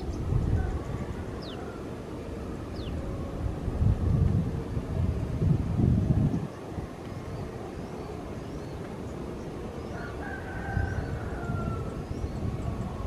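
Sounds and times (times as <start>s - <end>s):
small birds chirping: 0.0s - 1.8s, 2.7s - 3.2s
distant jet engines rumbling: 0.0s - 13.0s
rooster crowing: 0.5s - 2.1s, 9.9s - 12.1s.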